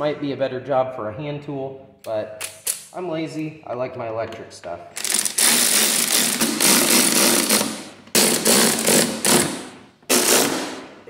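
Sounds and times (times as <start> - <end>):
impact driver hammering screws: 5.0 - 10.8.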